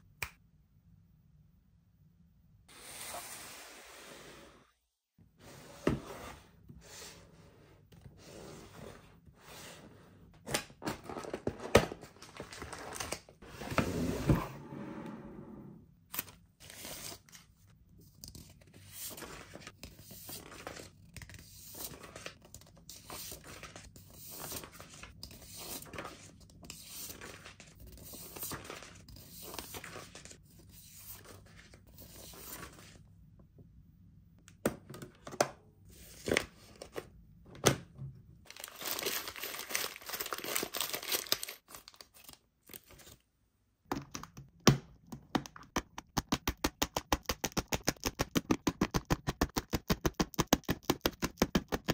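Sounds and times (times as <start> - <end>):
paper and plastic rustling: 38.5 - 43.2.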